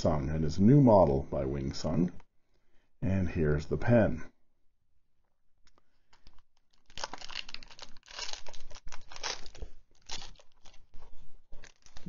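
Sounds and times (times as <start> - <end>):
plastic sleeve crinkling: 5.6 - 12.0.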